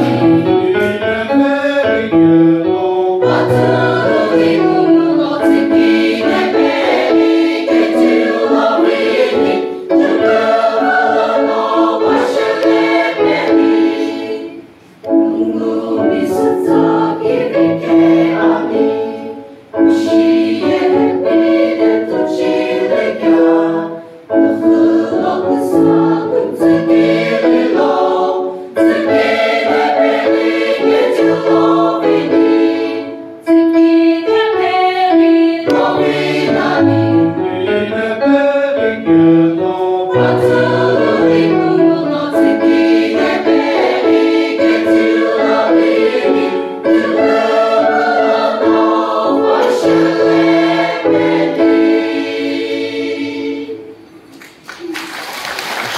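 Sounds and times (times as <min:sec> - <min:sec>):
women's choir singing a hymn: 0:00.0 - 0:54.3.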